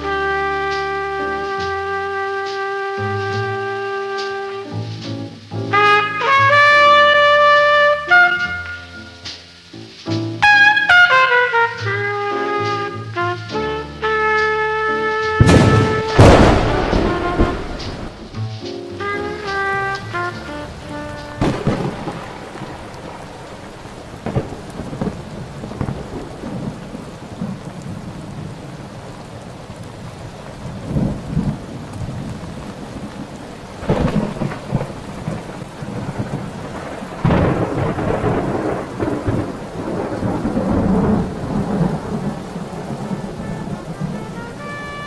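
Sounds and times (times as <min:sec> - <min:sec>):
rain falling: 0:00.0 - 0:45.0
thunder rolling: 0:00.0 - 0:45.0.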